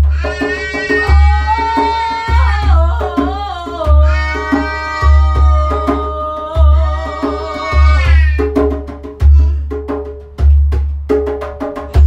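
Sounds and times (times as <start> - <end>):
person singing long notes: 0.0 - 8.4
djembe played by hand: 0.0 - 12.0.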